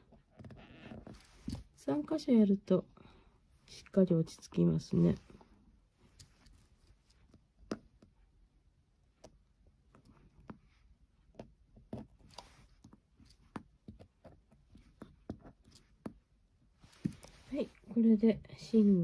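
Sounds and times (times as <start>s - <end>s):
faint clicks and soft taps: 5.2s - 17.6s.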